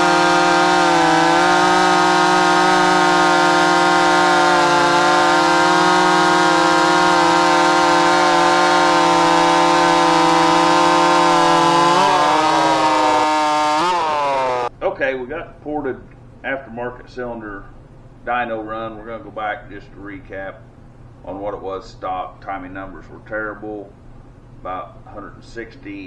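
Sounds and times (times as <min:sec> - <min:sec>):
chainsaw cutting through log: 0:00.0 - 0:14.7.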